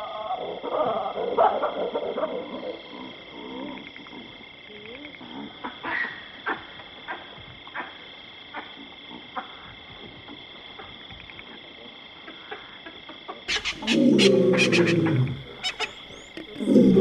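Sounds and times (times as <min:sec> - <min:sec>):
baboons barking alarm calls: 0:13.5 - 0:17.0.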